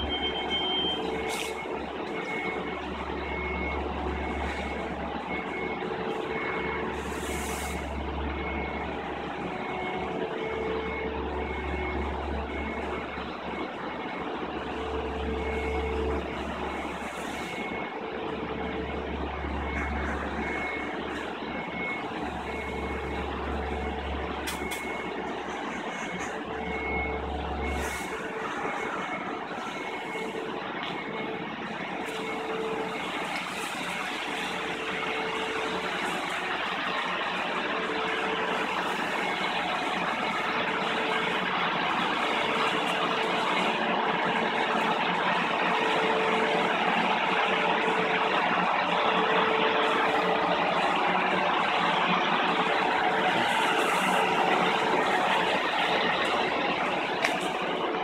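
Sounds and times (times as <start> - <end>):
machinery noise: 0.0 - 58.0
warning beeper beeping: 0.0 - 58.0.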